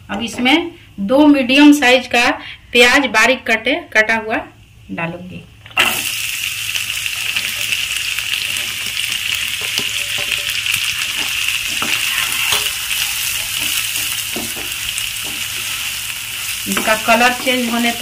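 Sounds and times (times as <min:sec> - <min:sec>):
onions sizzling in hot oil: 0:05.8 - 0:18.0
wooden spatula scraping a pan: 0:09.5 - 0:18.0.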